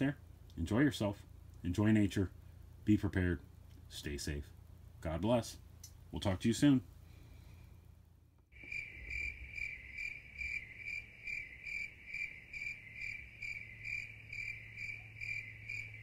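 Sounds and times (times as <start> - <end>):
faint low hum: 0.0 - 16.0
cricket chirping: 8.5 - 16.0.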